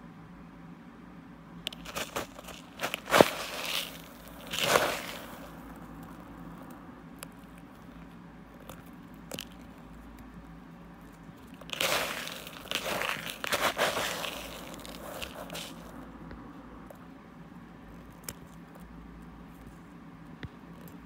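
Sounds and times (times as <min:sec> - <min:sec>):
fingers crunching coarse crystals: 0:01.6 - 0:10.3, 0:11.2 - 0:16.0.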